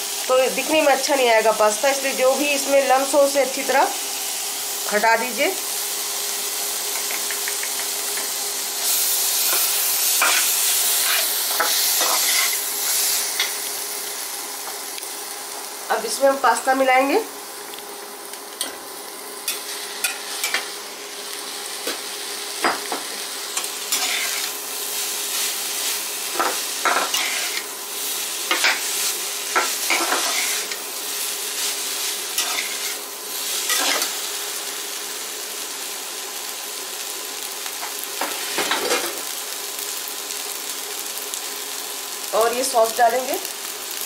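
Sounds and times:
vegetables sizzling in oil: 0.0s - 44.0s
metal spatula scraping a pan: 9.5s - 12.6s, 23.9s - 24.5s, 26.4s - 27.6s, 29.6s - 30.8s, 32.3s - 33.0s.

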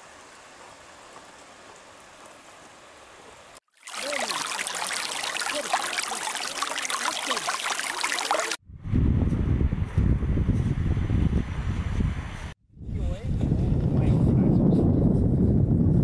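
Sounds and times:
stream trickling over stones: 3.7s - 8.6s.

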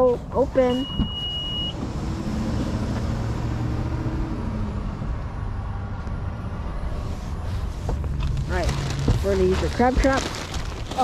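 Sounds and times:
car engine rumbling: 0.0s - 11.0s
high steady beep: 0.6s - 1.8s.

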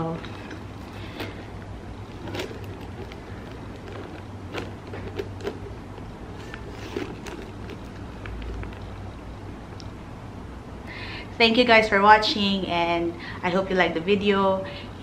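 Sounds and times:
chain links clinking: 0.0s - 5.7s
bag rustling: 0.0s - 9.2s
low steady hum: 0.0s - 15.0s.

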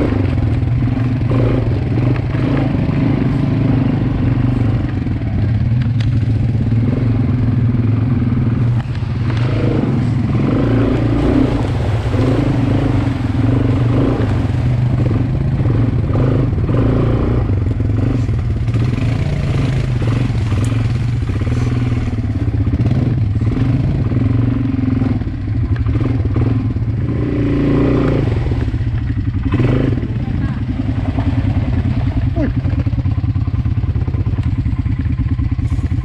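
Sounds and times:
quad bike engine running: 0.0s - 36.0s.

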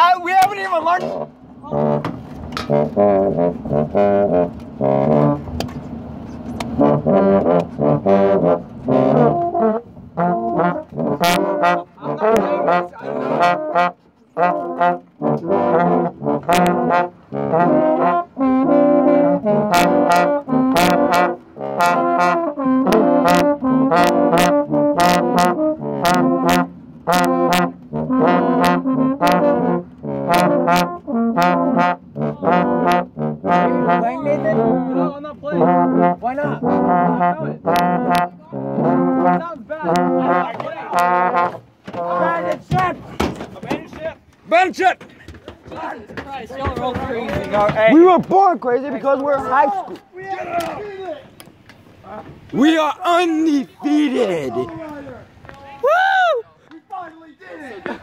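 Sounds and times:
trombones playing short notes: 1.0s - 5.6s, 6.7s - 43.0s
sharp regular taps: 6.6s - 7.9s.

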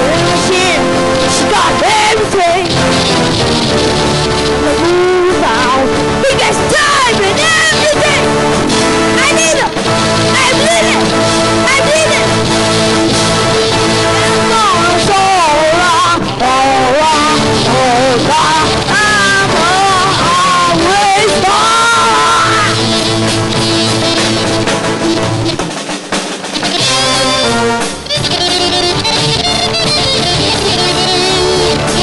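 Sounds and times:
lead guitar bent notes: 0.0s - 32.0s
live rock band playing: 0.0s - 32.0s.

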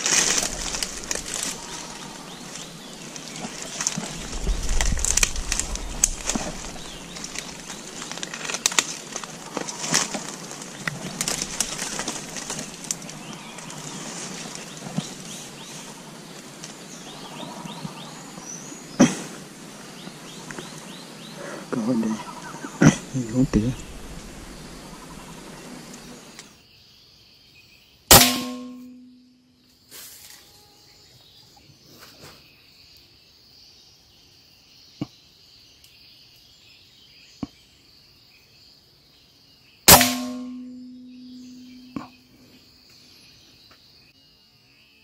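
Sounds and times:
high insect trill: 0.0s - 18.8s
loud sharp bangs: 28.1s - 29.1s, 39.9s - 41.7s.

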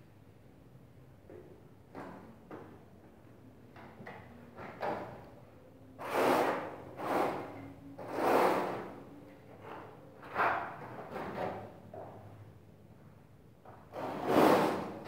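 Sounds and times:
trowel scraping mortar: 6.0s - 9.0s, 13.9s - 15.0s.

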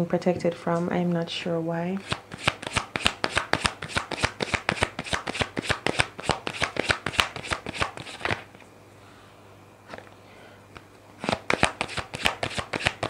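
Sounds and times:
cards being shuffled: 2.0s - 8.6s, 11.2s - 13.0s.

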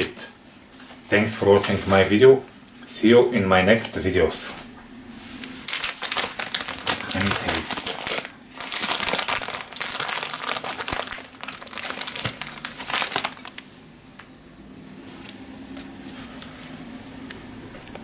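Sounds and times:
candy wrappers crinkling: 5.4s - 13.7s.

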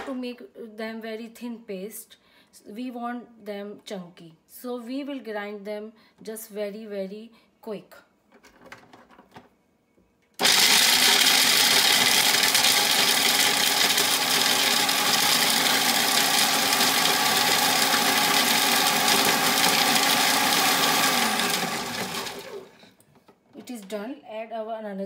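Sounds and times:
food processor switch: 10.4s - 22.9s
food processor motor chopping nuts: 10.4s - 23.0s.

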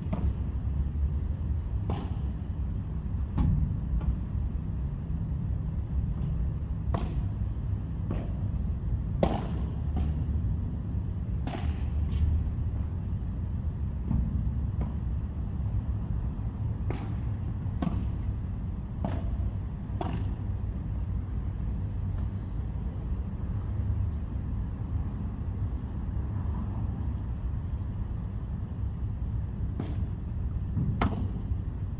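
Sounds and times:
rackets hitting ball: 30.8s - 31.4s.

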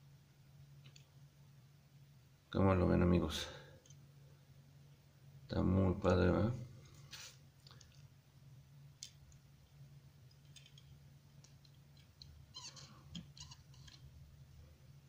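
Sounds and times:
low steady hum: 0.0s - 15.0s
toy car clicks and rustles: 10.4s - 12.3s.

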